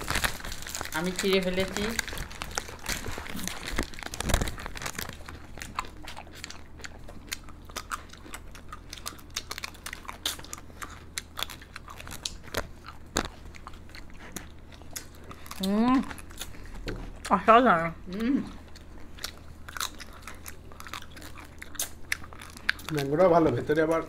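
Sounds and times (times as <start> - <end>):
wrapper crinkling: 0.0 - 6.5
people biting ice cream: 0.0 - 17.4.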